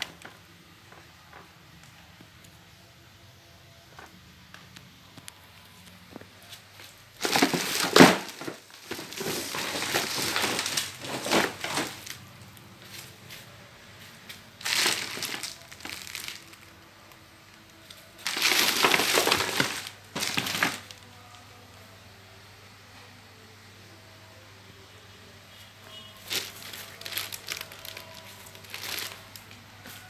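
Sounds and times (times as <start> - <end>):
plastic wrapping crinkling: 0.0 - 2.0, 3.9 - 13.6, 14.3 - 21.5, 26.2 - 30.0.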